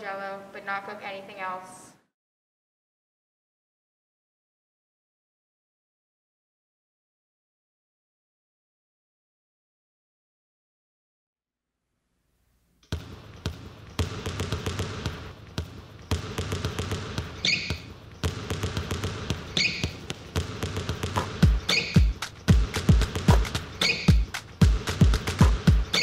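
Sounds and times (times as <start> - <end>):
sneaker squeaks: 12.9 - 22.3, 23.6 - 24.3
basketball dribbling: 12.9 - 26.0.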